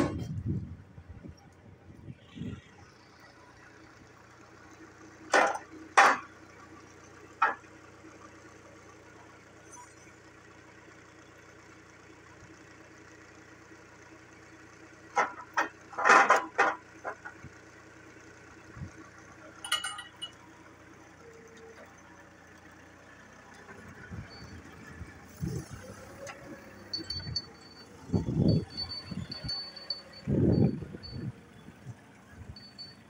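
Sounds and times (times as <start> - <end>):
low engine hum: 0.0 - 33.0
steel parts clanking: 19.6 - 20.4.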